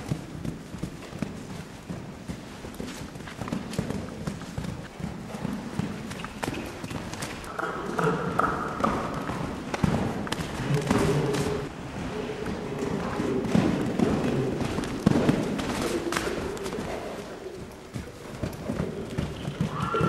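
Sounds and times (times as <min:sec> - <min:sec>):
hoofbeats on sand: 0:00.0 - 0:20.0
horse whinny: 0:19.4 - 0:20.0.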